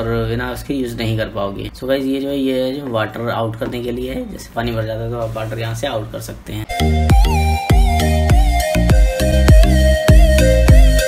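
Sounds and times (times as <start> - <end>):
electronic dance music: 6.7 - 11.0
held synth melody: 6.7 - 11.0.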